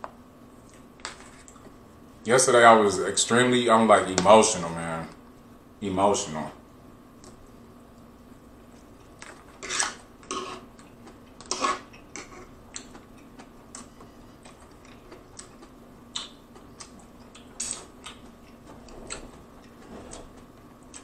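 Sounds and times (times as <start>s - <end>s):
chewing: 10.8s - 21.0s.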